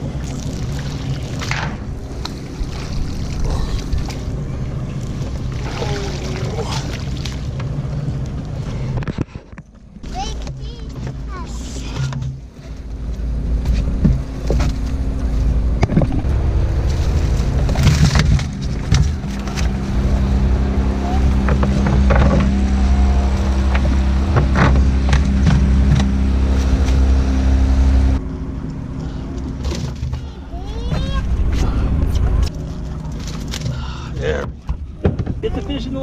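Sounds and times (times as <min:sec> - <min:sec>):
steady low hum: 0:00.0 - 0:36.0
fish flopping and slapping: 0:15.9 - 0:20.0.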